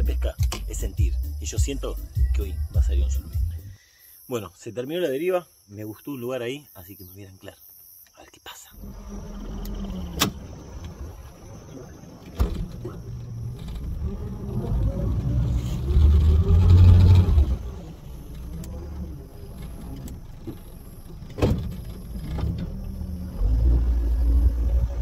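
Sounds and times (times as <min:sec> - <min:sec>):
outboard motor rumbling: 0:08.8 - 0:25.0.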